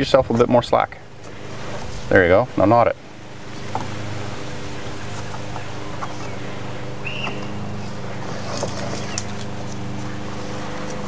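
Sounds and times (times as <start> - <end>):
low hum: 0.0 - 11.0
strap rustling and clicking: 7.2 - 11.0.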